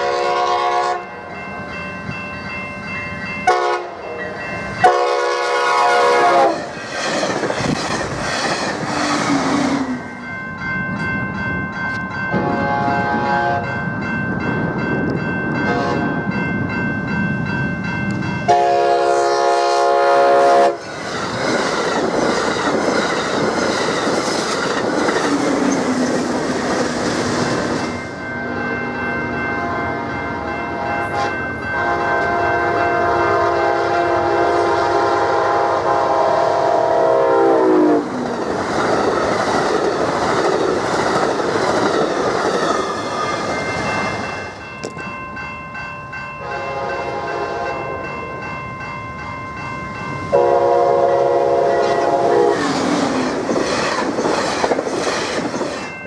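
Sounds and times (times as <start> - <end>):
train horn blasts: 0.0 - 1.1, 3.4 - 6.7, 12.3 - 13.7, 15.7 - 16.1, 18.5 - 20.8, 30.8 - 38.1, 46.4 - 48.1, 50.3 - 52.6
crossing bell ringing: 0.0 - 56.0
train wheels clattering: 4.8 - 10.0, 20.7 - 28.2, 38.1 - 45.2, 51.6 - 56.0.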